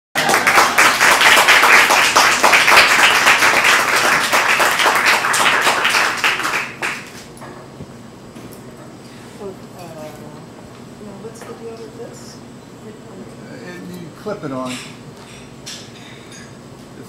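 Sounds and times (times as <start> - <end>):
audience applause: 0.2 - 7.2.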